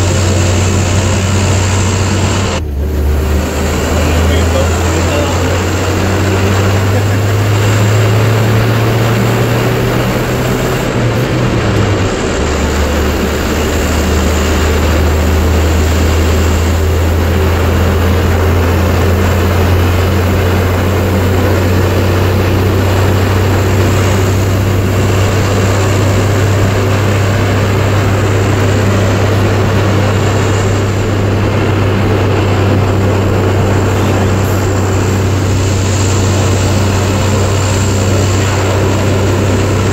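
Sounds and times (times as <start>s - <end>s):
loud steady vehicle drone: 0.0s - 39.9s.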